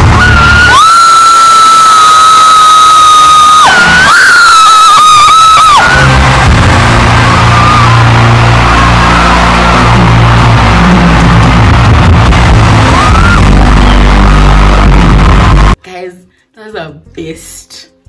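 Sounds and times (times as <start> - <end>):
heavy bass notes: 0.0 - 15.8
loud live concert music: 0.0 - 15.8.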